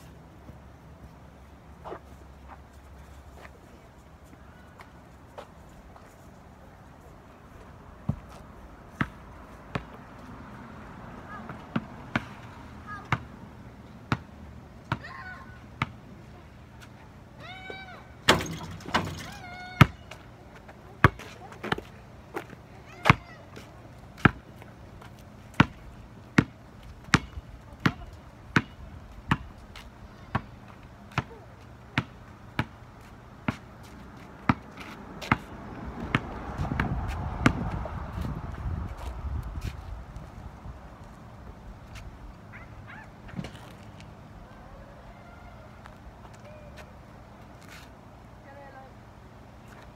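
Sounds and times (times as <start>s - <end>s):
basketball bouncing on asphalt: 8.0s - 10.4s, 11.3s - 16.1s, 17.5s - 40.3s.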